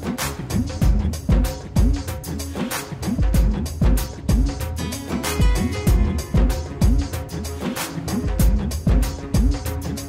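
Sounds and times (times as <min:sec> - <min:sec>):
deep kick drum: 0:00.6 - 0:02.2, 0:03.1 - 0:04.7, 0:05.5 - 0:07.2, 0:08.3 - 0:09.7
sliding bass line: 0:04.2 - 0:09.6.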